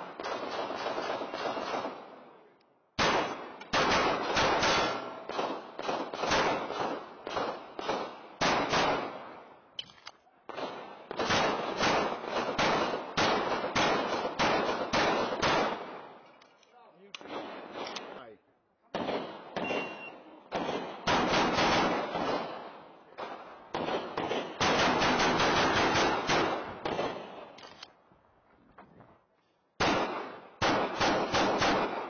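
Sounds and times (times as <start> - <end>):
rapid pistol fire: 0.0 - 2.1, 3.0 - 9.3, 10.5 - 16.1, 19.0 - 19.9, 20.5 - 27.5, 29.8 - 32.0.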